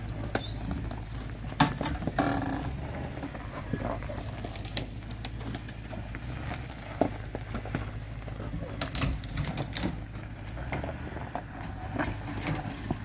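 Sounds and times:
low engine rumble: 0:00.0 - 0:13.0
branches snapping and scraping: 0:04.2 - 0:06.5, 0:08.4 - 0:11.0.

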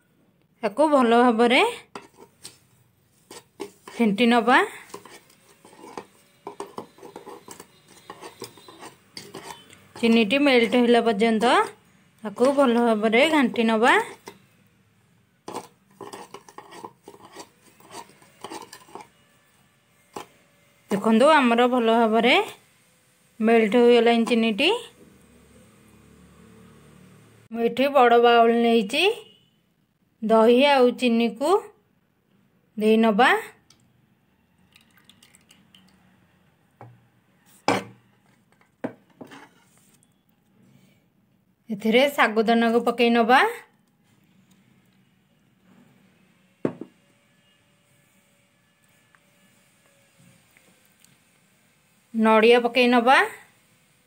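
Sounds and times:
metal spoon scraping ceramic bowl: 0:01.8 - 0:14.5, 0:15.4 - 0:19.4, 0:20.0 - 0:21.5, 0:23.6 - 0:24.6, 0:37.5 - 0:39.9.

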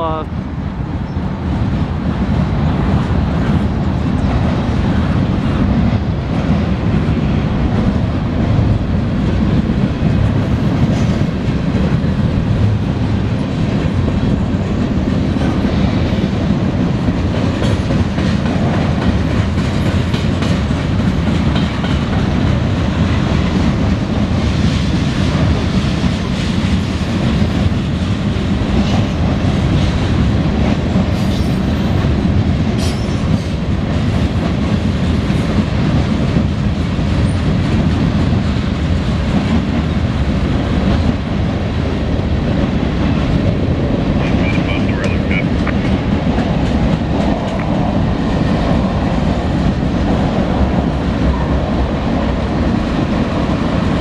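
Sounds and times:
freight train wheels rumbling: 0:00.0 - 0:54.0.

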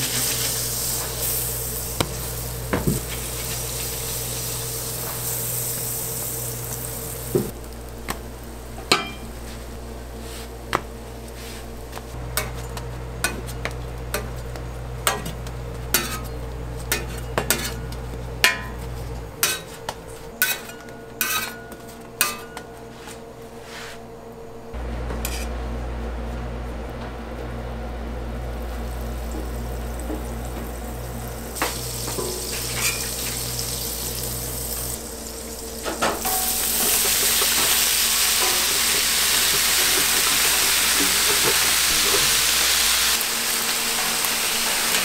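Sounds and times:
butter sizzling on griddle: 0:00.0 - 0:08.7, 0:28.6 - 0:45.0.

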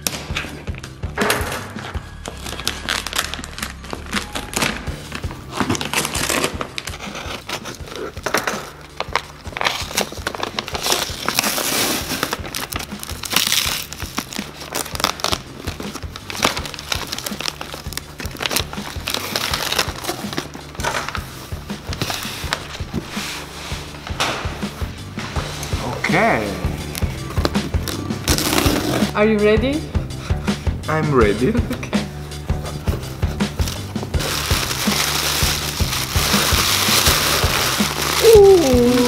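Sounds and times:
background music: 0:00.0 - 0:39.0
paper wrapping crinkling: 0:02.2 - 0:24.0, 0:32.6 - 0:39.0.

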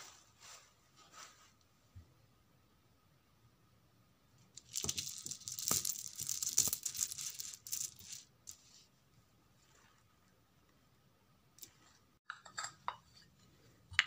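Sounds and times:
mirror pieces rattling and clinking: 0:04.6 - 0:08.3.

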